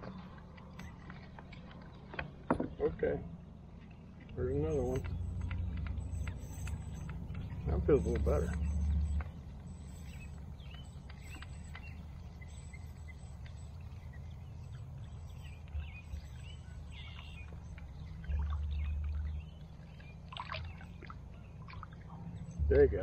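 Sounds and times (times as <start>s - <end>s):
small birds chirping: 0.0s - 23.0s
water splash: 20.3s - 22.1s.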